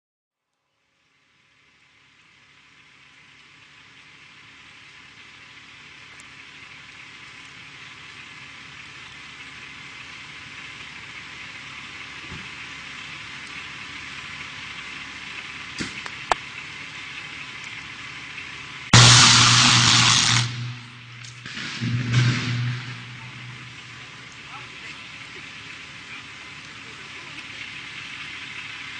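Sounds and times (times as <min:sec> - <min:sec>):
electrical arcing sizzle: 0:19.0 - 0:24.4
sharp electrical pops: 0:19.0 - 0:24.4.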